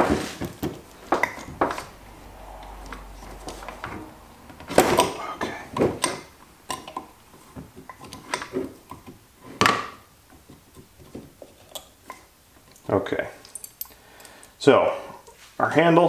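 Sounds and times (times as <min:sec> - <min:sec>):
wrenches clinking on metal: 0:12.6 - 0:14.6.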